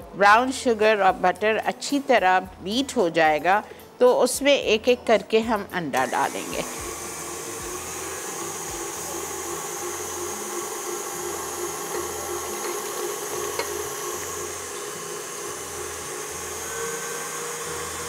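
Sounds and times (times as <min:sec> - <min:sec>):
stand mixer motor whine: 0:06.1 - 0:18.0.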